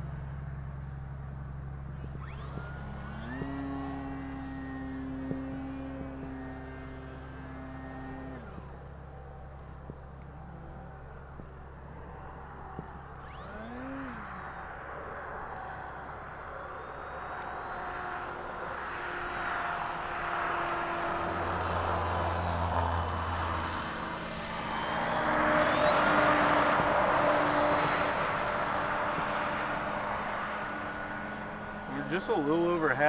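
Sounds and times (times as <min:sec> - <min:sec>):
model airplane motor and propeller: 0:00.0 - 0:33.0.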